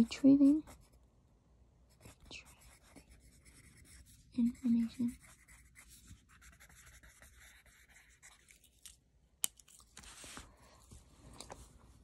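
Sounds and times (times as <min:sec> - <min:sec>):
pen scratching on paper: 0:00.0 - 0:01.0, 0:01.9 - 0:08.7
paper rustle: 0:09.7 - 0:11.7.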